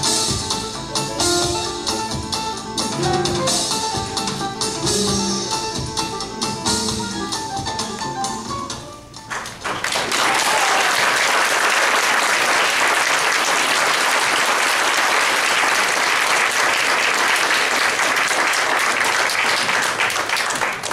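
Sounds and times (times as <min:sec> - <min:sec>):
audience applauding: 0:09.3 - 0:20.9.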